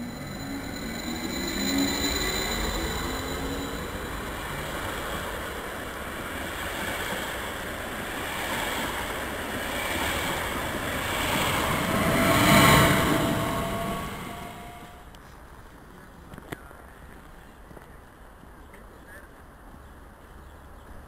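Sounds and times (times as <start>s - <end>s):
train running-gear rushing noise: 0.0s - 15.1s
traction motor whine rising: 9.7s - 15.0s.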